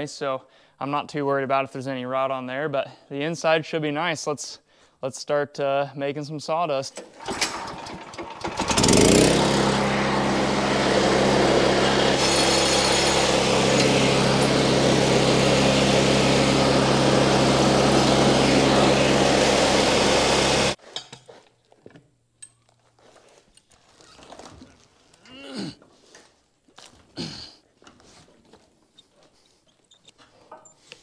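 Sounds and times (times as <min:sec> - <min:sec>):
band sawmill engine running: 0:07.2 - 0:20.8
band blade sawing log: 0:08.8 - 0:20.8.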